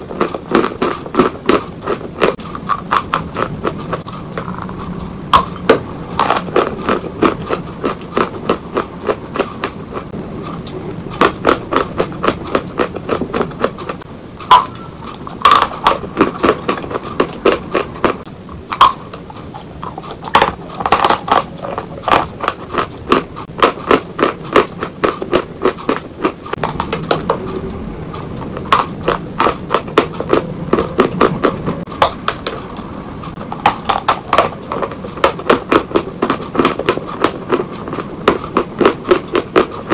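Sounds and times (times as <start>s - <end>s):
chalk being chewed: 0.2s - 39.9s.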